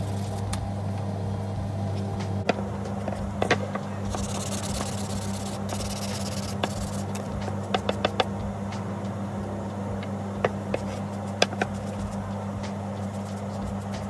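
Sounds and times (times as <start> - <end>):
steady low hum: 0.0 - 14.0
sponge rubbing on wood: 4.1 - 8.2, 10.7 - 12.3
board knocking on bench: 7.7 - 8.3, 10.4 - 11.8.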